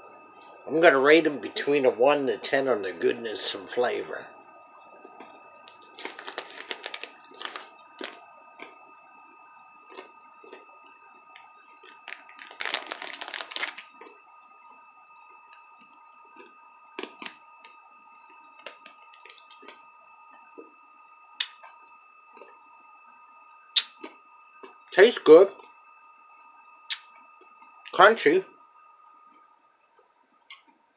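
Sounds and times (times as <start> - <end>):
chewing crunchy candy: 5.0 - 14.2, 15.5 - 19.8
candy package crinkling: 5.1 - 8.7, 11.3 - 14.2, 16.4 - 19.8.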